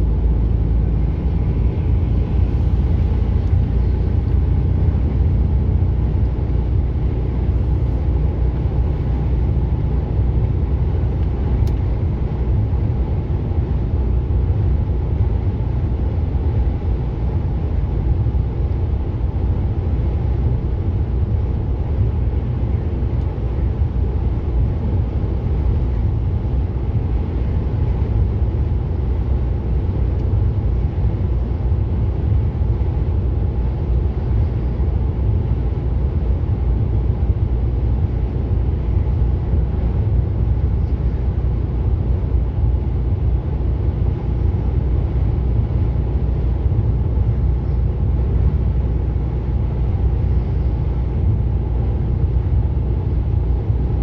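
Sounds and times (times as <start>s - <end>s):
lorry engine drone: 0.0s - 54.0s
road rumble: 0.0s - 54.0s.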